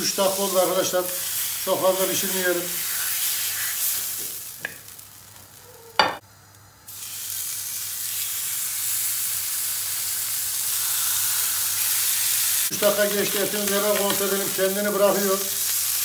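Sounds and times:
meat sizzling in a pan: 0:00.0 - 0:16.0.

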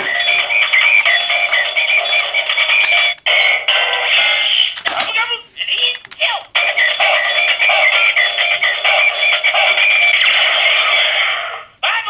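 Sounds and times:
tinny toy music jingle: 0:00.0 - 0:04.5, 0:06.5 - 0:11.2.

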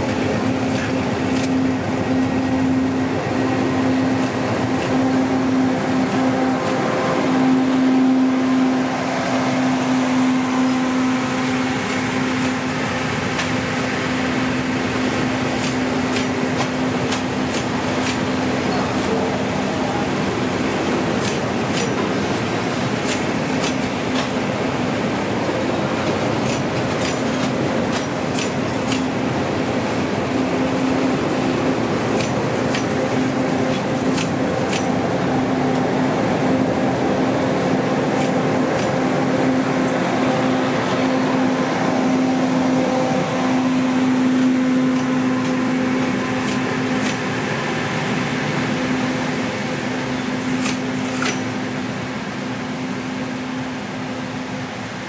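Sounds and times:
train wheels clicking over rail joints: 0:00.0 - 0:01.6, 0:10.6 - 0:20.0, 0:20.6 - 0:35.1, 0:37.7 - 0:40.0, 0:43.7 - 0:51.8.

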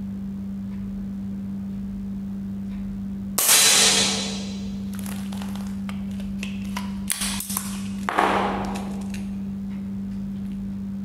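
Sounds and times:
air pistol shot: 0:03.4 - 0:04.8.

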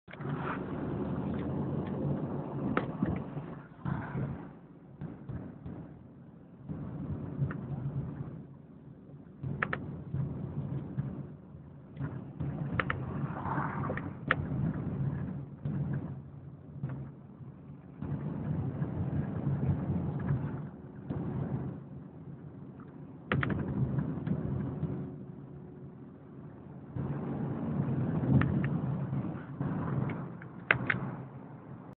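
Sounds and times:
car engine: 0:00.0 - 0:32.0
road rumble: 0:00.0 - 0:32.0
sharp clicks: 0:30.0 - 0:31.1.

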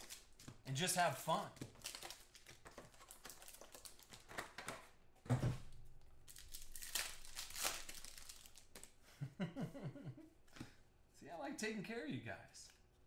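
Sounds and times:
foil wrappers crinkling and tearing: 0:00.0 - 0:04.5, 0:06.2 - 0:08.9.

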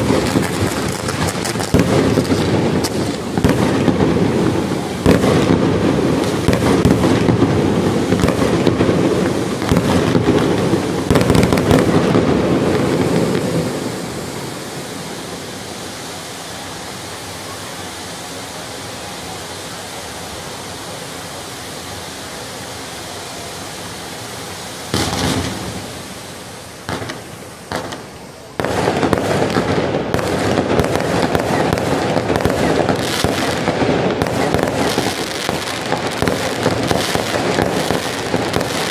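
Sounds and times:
firework fountains hissing: 0:00.0 - 0:38.9
fireworks bangs and crackling: 0:00.0 - 0:38.9.

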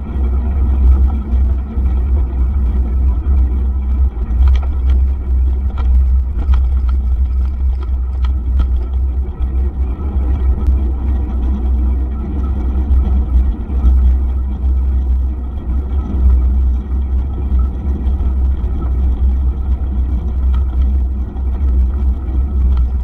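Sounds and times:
wind rumble on microphone: 0:00.0 - 0:23.0
bike tyres on rough path: 0:00.8 - 0:11.4
light clicks and rattles: 0:04.1 - 0:09.5, 0:19.8 - 0:23.0.

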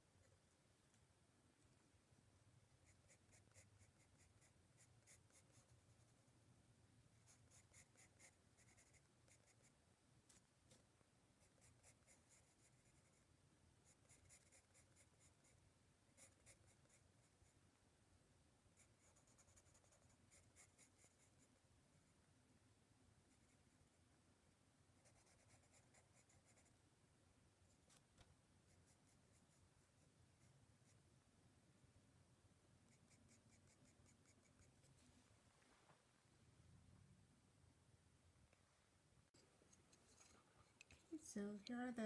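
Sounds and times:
pencil scratching on paper: 0:02.8 - 0:06.3, 0:07.2 - 0:10.4, 0:11.4 - 0:13.2, 0:13.8 - 0:15.6, 0:16.2 - 0:17.6, 0:18.8 - 0:21.5, 0:25.0 - 0:26.7, 0:32.9 - 0:35.0.

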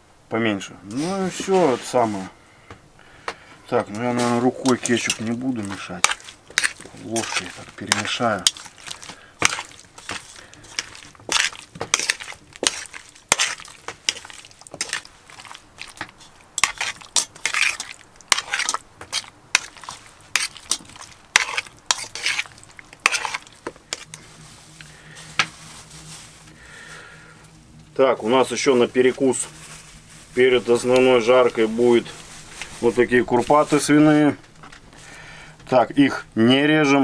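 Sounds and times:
spoon scraping metal pot: 0:03.8 - 0:24.3
wet squelching of meat: 0:04.6 - 0:26.9.

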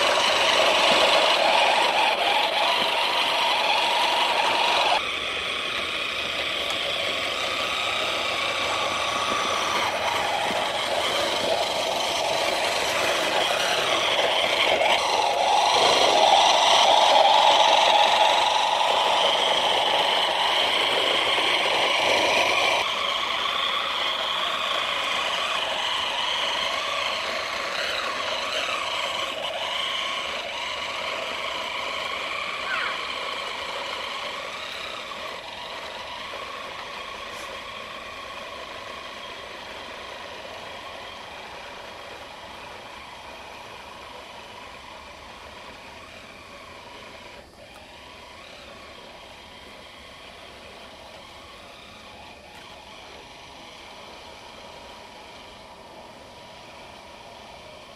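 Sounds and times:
model train motor and wheels whirring: 0:00.0 - 0:57.9.

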